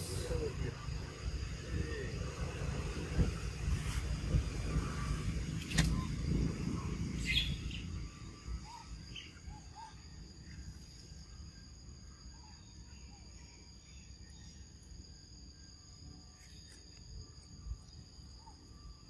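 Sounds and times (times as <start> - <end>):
low rumble: 0.0 - 9.7
insect drone: 0.0 - 19.0
sharp click: 5.6 - 6.0.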